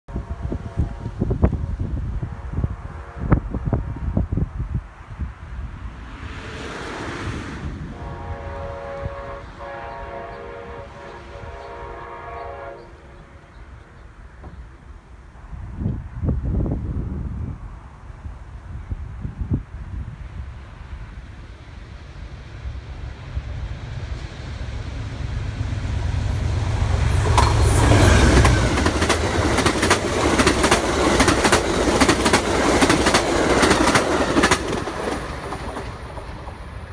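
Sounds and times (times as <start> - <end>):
wind rumble on microphone: 0.1 - 12.2, 15.4 - 21.4
diesel locomotive engine rumble: 0.1 - 36.9
rushing roar of passing train: 0.1 - 36.9
train air horn: 2.2 - 3.9, 7.8 - 13.4, 26.1 - 28.8
train wheels clickety-clack: 27.0 - 36.9.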